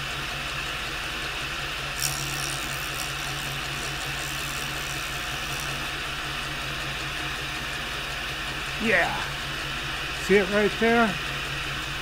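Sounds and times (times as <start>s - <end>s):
grinder humming: 1.9s - 7.3s
blade grinding on wheel: 2.0s - 6.4s.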